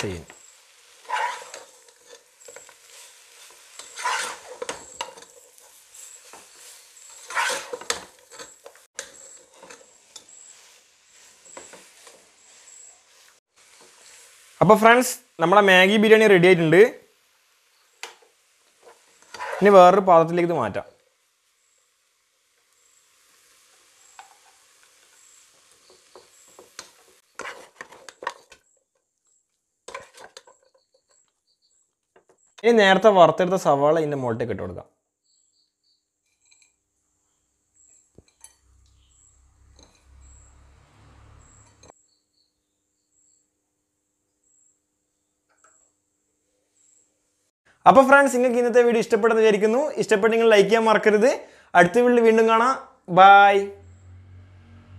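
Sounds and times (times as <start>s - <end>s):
spatula scraping nonstick pot: 0.2s - 14.5s, 18.7s - 19.8s, 23.7s - 28.8s, 29.9s - 31.3s
metal spoon clinking on pot and plate: 7.2s - 10.4s, 38.2s - 38.8s.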